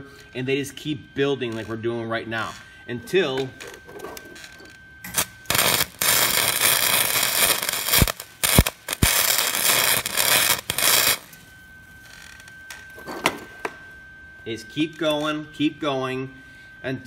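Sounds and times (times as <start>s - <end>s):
welding arc crackling and sizzling: 0.1s - 13.0s
sharp cracks: 5.1s - 11.3s.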